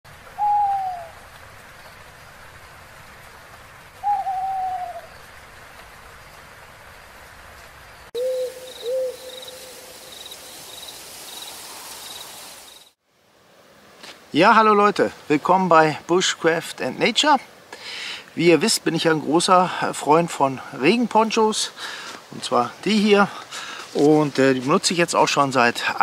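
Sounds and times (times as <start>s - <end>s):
owl hooting: 0.4s - 1.2s, 4.0s - 5.1s, 8.2s - 9.9s
faint high chirping: 8.2s - 13.0s.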